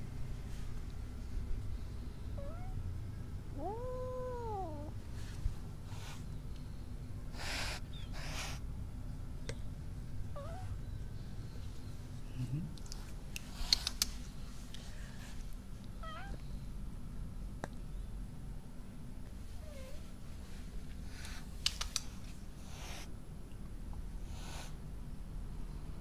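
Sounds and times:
kitten hissing: 7.3s - 8.7s, 13.5s - 14.2s, 21.1s - 23.1s, 24.2s - 24.8s
sharp clicks: 21.6s - 22.1s.

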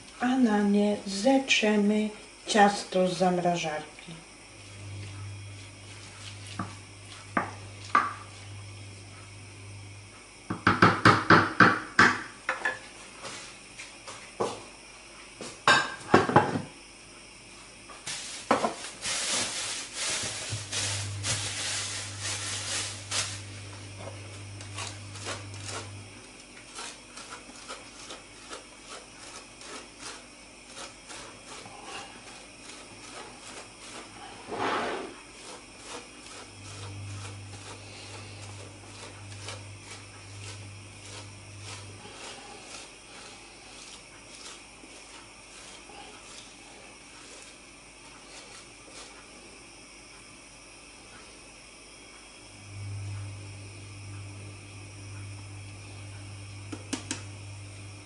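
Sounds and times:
dough grated on metal grater: 18.1s - 49.6s.

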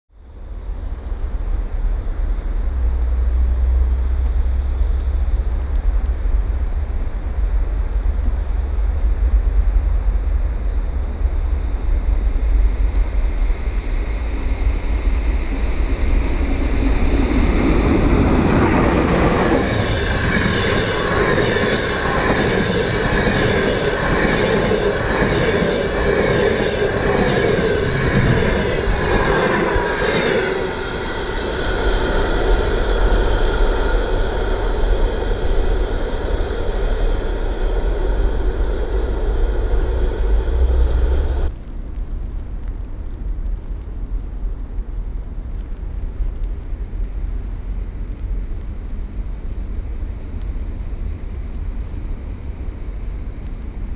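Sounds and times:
wind rumble on microphone: 0.1s - 53.9s
train wheels rushing on rails: 1.0s - 41.5s
high ringing tones: 30.4s - 41.5s.

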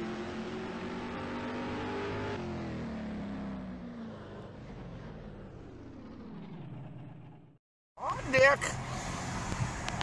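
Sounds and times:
engine-like falling tone: 0.6s - 7.6s.

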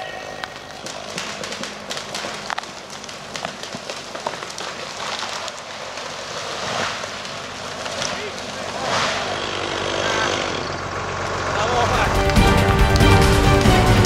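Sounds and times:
branches cracking and snapping: 0.0s - 14.0s
rushing swish of branches: 4.8s - 9.4s.

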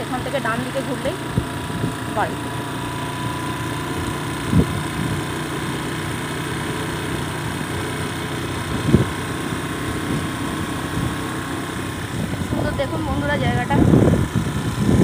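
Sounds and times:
scooter engine running: 0.0s - 15.0s
wind on microphone: 4.5s - 5.2s, 8.6s - 9.2s, 12.0s - 15.0s.

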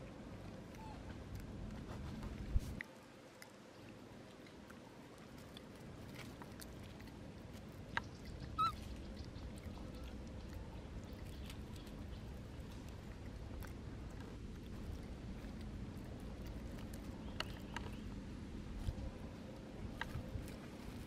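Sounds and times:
high-pitched animal squeak: 8.5s - 8.8s.

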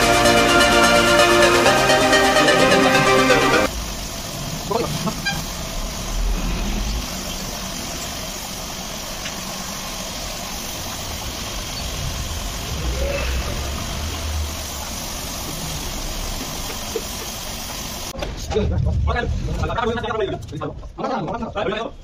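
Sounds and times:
low steady rumble: 3.7s - 17.5s
paint spray gun hissing: 7.0s - 12.8s, 13.6s - 18.2s.

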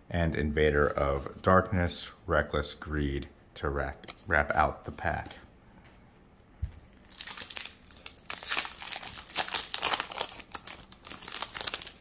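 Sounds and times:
foil wrapper crinkling and tearing: 7.0s - 12.0s.

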